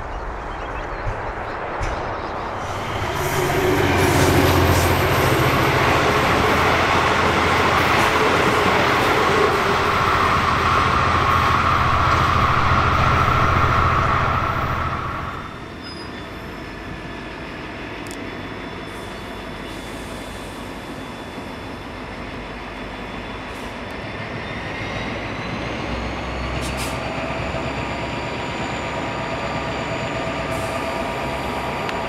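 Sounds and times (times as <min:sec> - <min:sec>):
locomotive engine drone: 0:00.0 - 0:32.0.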